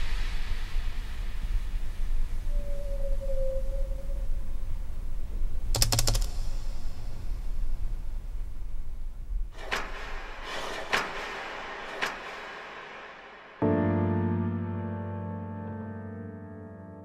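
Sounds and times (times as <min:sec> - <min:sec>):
quick mechanical clicks: 0:05.7 - 0:07.5
sharp ringing clicks: 0:05.7 - 0:07.6.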